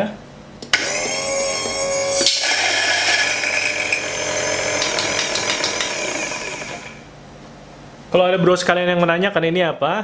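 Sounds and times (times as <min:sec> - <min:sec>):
coffee grinder motor whine: 0:00.7 - 0:07.1.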